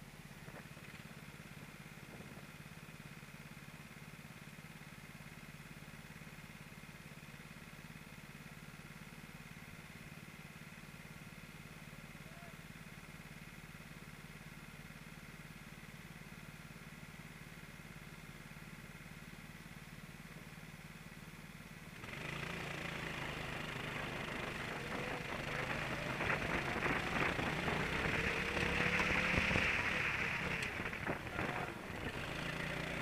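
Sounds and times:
kart engines: 22.0s - 33.0s.

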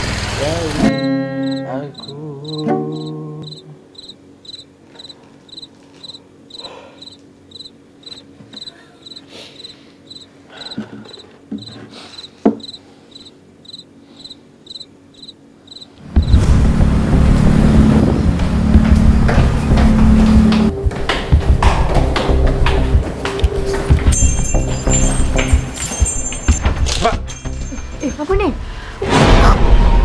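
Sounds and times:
acoustic guitar: 0.4s - 3.8s
cricket chirping: 1.4s - 16.0s
loud rumbling noise: 16.0s - 23.0s.

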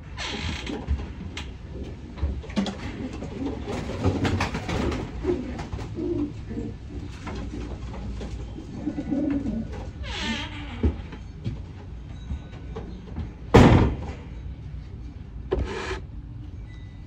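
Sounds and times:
pigeons cooing: 2.8s - 10.0s.

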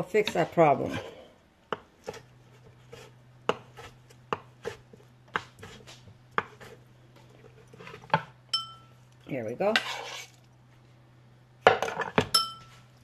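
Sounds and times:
low steady hum: 0.0s - 13.0s
knife chopping on wooden board: 1.7s - 6.8s.

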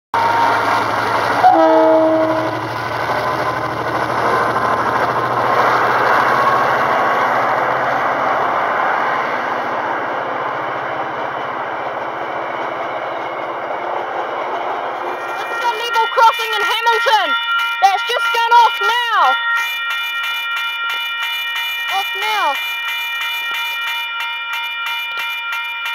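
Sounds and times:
train wheels rumbling on rails: 0.2s - 18.9s
train horn: 1.3s - 2.7s.

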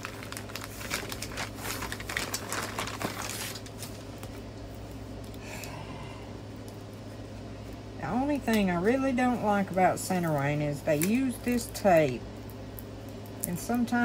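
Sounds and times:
plastic packaging crinkling: 0.0s - 5.3s
steady low hum: 0.0s - 14.0s.

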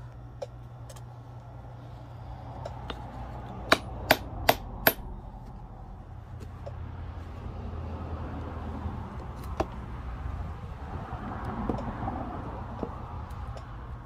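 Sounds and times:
low background rumble: 0.0s - 14.0s.

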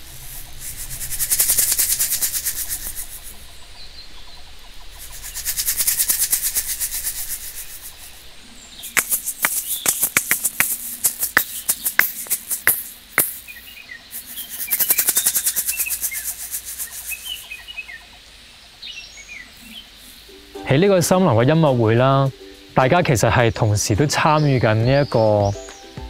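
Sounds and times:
sharp shaker clicks: 0.0s - 3.4s, 5.0s - 8.2s, 8.8s - 17.7s
shaker rattling: 0.0s - 3.6s, 4.9s - 17.8s.

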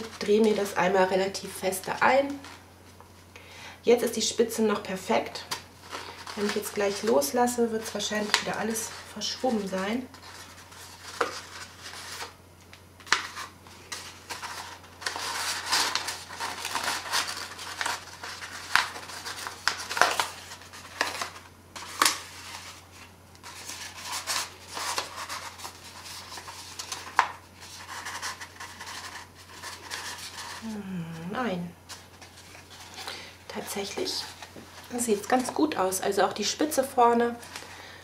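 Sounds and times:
paper rustling and crackling: 5.5s - 12.4s, 13.0s - 30.6s, 31.9s - 35.7s.

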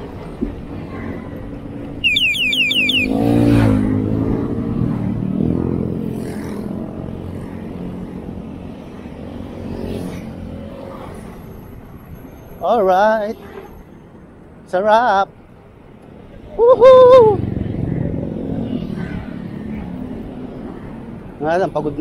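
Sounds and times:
motorcycles passing by: 0.0s - 11.8s, 16.2s - 22.0s
wind and road rumble: 0.0s - 22.0s
high falling chirps: 2.0s - 3.4s.

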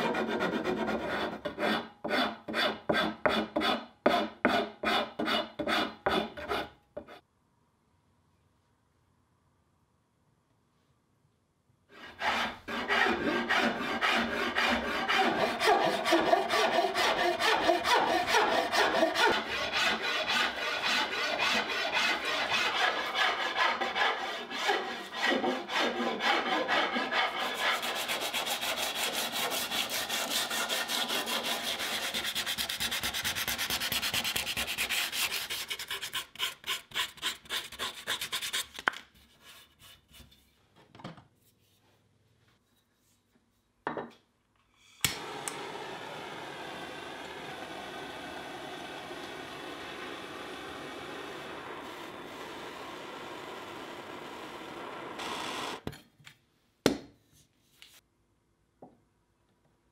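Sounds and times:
hand file rasping on wood: 0.0s - 7.2s, 12.0s - 38.6s.

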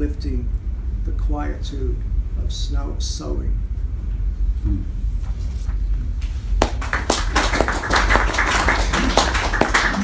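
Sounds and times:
audience applauding: 6.6s - 10.0s.

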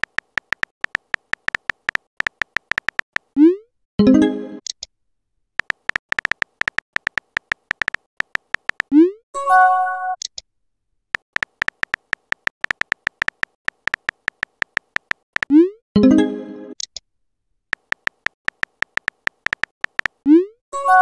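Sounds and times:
keyboard tap clicks: 0.0s - 3.3s, 5.6s - 8.9s, 11.2s - 15.5s, 17.8s - 20.2s.

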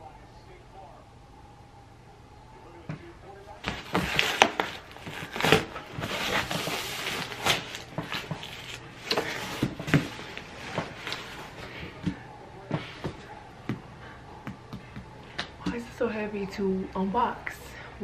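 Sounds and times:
cardboard ripping: 3.6s - 10.4s.

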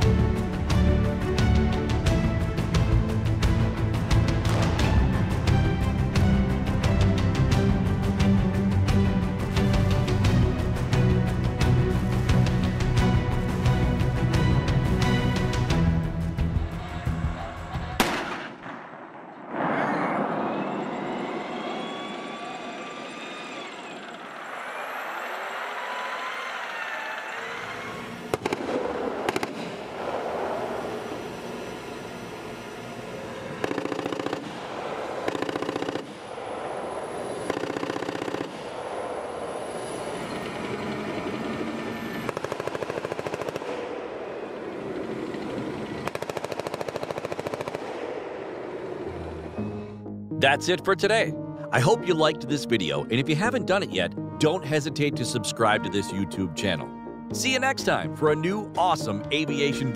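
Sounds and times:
gas-turbine engine whine: 20.2s - 46.3s.

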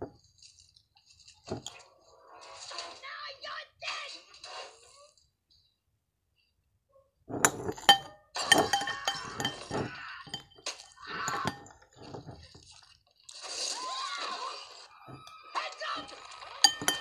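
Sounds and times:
sharp glass clinks: 7.8s - 10.6s, 16.6s - 17.0s.

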